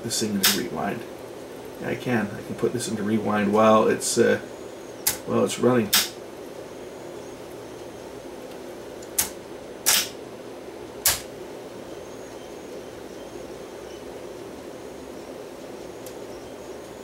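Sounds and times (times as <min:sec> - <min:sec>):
cassette deck rewinding whir: 0:00.0 - 0:17.0
sharp clicks: 0:00.4 - 0:00.7, 0:05.0 - 0:05.3, 0:05.9 - 0:06.2, 0:09.0 - 0:10.2, 0:11.0 - 0:11.3.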